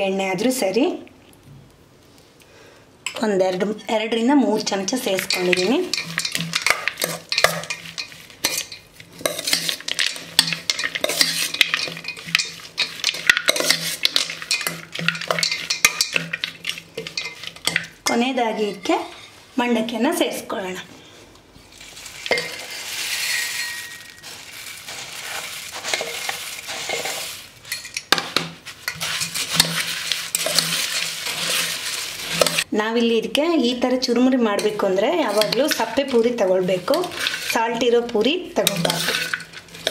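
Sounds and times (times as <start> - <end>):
spoon scraping metal bowl: 4.5 - 19.4, 22.2 - 24.3, 24.9 - 28.1, 28.8 - 32.7, 34.6 - 37.7, 38.6 - 39.9
puffed rice pouring into steel vessel: 22.6 - 27.3.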